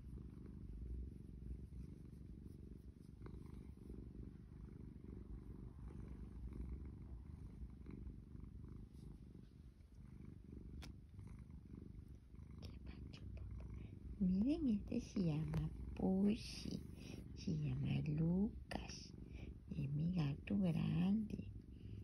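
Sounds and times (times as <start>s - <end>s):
cat purring: 0.0s - 22.0s.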